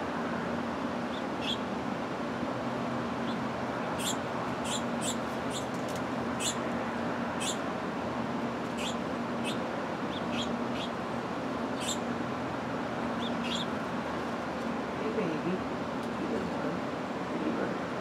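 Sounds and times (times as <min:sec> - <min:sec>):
steady background hiss: 0:00.0 - 0:18.0
small birds chirping: 0:01.1 - 0:01.7, 0:03.2 - 0:06.7, 0:07.3 - 0:07.6, 0:08.7 - 0:11.0, 0:11.7 - 0:12.1, 0:13.0 - 0:13.8.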